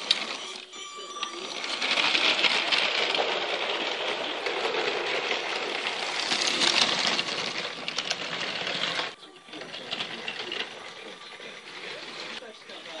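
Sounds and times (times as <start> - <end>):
toy train wheels and motor rattling: 0.0 - 13.0.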